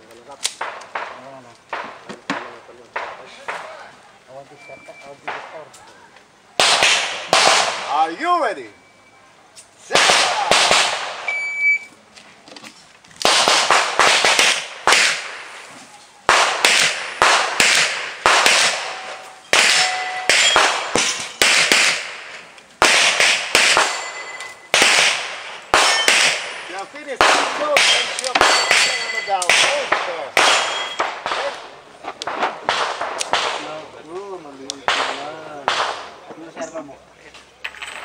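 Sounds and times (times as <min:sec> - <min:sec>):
handgun shots with echo: 0:16.3 - 0:22.2, 0:22.8 - 0:26.6, 0:32.2 - 0:33.8
steel targets ringing: 0:18.8 - 0:21.6, 0:23.6 - 0:24.8, 0:25.7 - 0:26.9, 0:27.7 - 0:29.8, 0:30.5 - 0:31.2.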